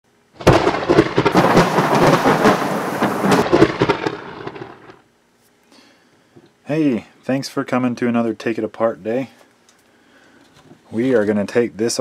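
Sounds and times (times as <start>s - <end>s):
thunder crackling and rumbling: 0.4s - 5.0s.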